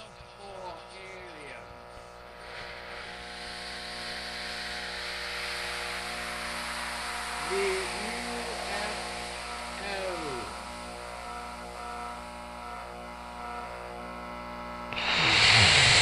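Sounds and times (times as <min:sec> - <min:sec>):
electronic hum of held tones: 0:00.0 - 0:16.0
hiss: 0:02.4 - 0:10.8, 0:14.9 - 0:16.0.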